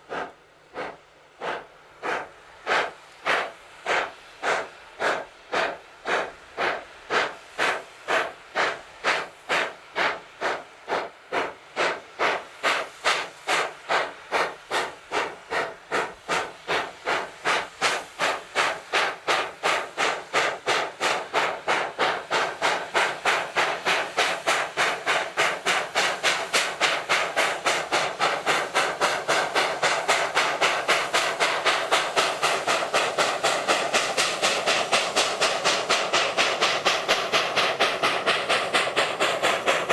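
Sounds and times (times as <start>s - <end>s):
steam locomotive exhaust chuffs: 0.0s - 39.9s.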